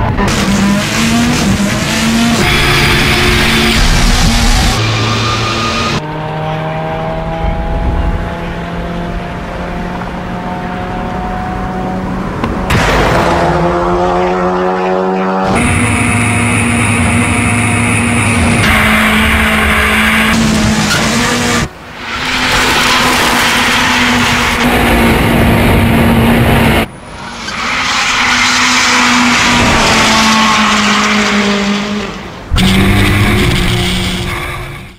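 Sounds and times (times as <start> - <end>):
rally car engine at high revs: 0.0 - 34.9
tyres squealing and skidding: 2.3 - 6.0, 14.1 - 25.2, 27.1 - 34.9.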